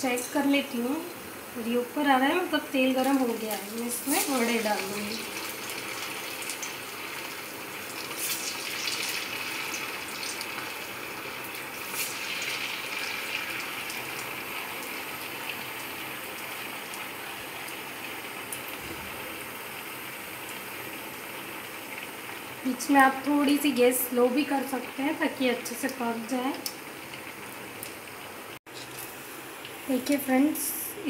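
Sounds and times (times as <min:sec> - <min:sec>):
food deep-frying in oil: 0:00.0 - 0:31.0
oil crackles: 0:02.9 - 0:18.8.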